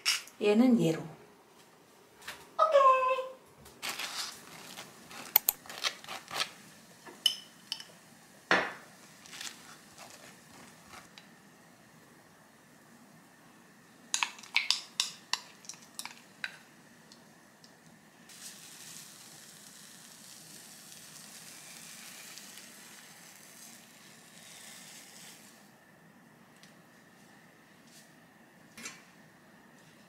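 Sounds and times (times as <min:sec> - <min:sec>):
eggs sizzling in a frying pan: 0:03.8 - 0:25.8.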